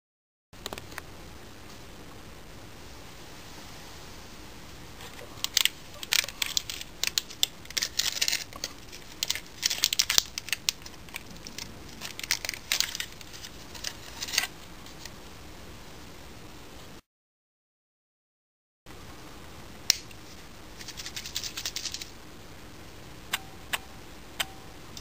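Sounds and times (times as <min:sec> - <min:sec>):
foil pouch tearing and crinkling: 0:05.4 - 0:15.2, 0:20.7 - 0:22.2.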